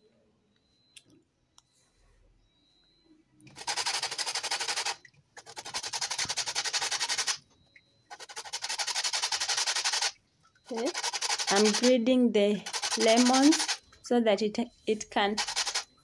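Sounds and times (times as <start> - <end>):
lemon rasping on grater: 3.5 - 7.4, 8.1 - 10.1, 10.7 - 11.9, 12.6 - 13.8, 15.3 - 15.8.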